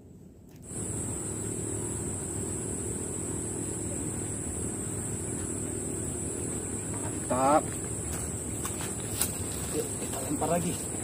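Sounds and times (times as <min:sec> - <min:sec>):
insect drone: 0:00.0 - 0:11.0
low steady hum: 0:00.0 - 0:11.0.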